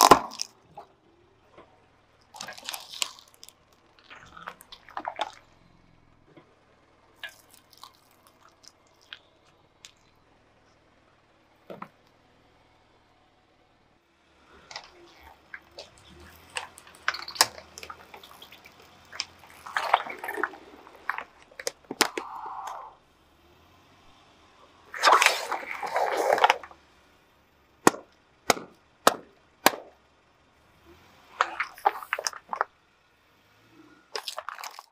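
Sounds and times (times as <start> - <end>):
bottles crushing and bursting: 0.0 - 0.8, 2.3 - 5.5, 14.6 - 22.8, 24.9 - 26.8, 27.8 - 30.0, 31.3 - 32.7, 34.1 - 34.9
plastic and rubber crackling: 0.0 - 0.9, 1.6 - 5.6, 14.5 - 22.8, 24.9 - 26.8, 31.3 - 32.8, 34.1 - 34.9.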